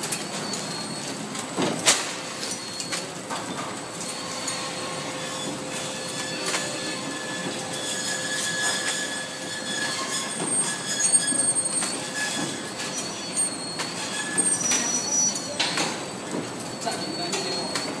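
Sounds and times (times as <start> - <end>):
packing machine clatter: 0.0 - 4.1
high-pitched machine tones: 3.9 - 15.7.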